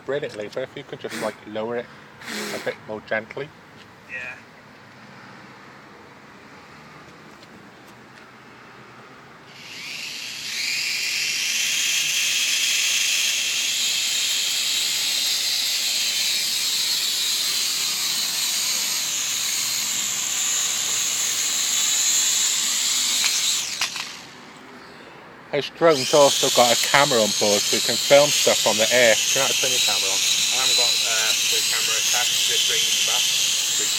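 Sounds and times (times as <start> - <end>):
toy drone propellers whining: 1.1 - 1.4, 2.2 - 2.8, 9.5 - 24.6, 25.7 - 33.9.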